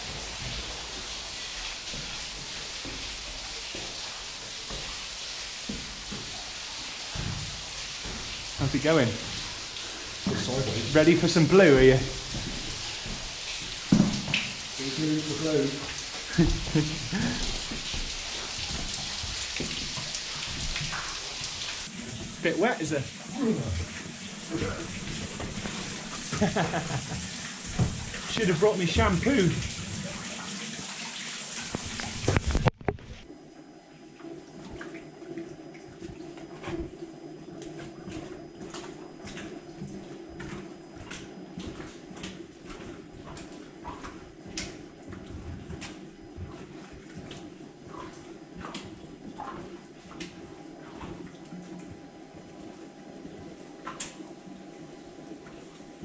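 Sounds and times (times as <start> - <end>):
steady low hum: 0.0 - 30.3
water dripping down a shaft: 0.0 - 56.0.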